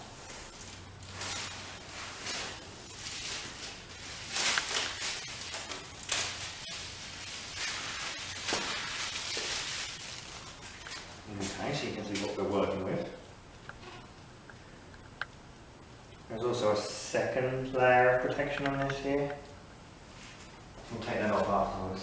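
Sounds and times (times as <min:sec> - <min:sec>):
plastic film peeling and crinkling: 0:00.0 - 0:15.4.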